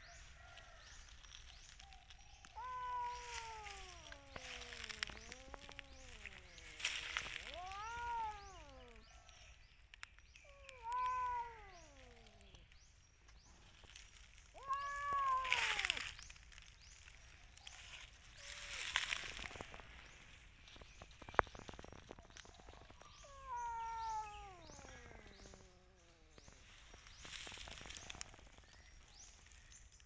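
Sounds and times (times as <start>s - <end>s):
rustling: 0.0s - 9.4s, 10.4s - 12.7s, 13.5s - 29.8s
cat meowing: 2.4s - 9.2s, 10.4s - 12.6s, 14.6s - 16.1s, 23.0s - 26.4s.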